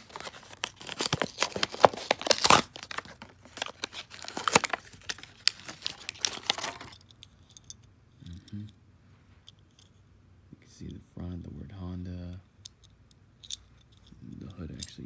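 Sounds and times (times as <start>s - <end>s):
plastic blister pack crackling: 0.0s - 6.9s.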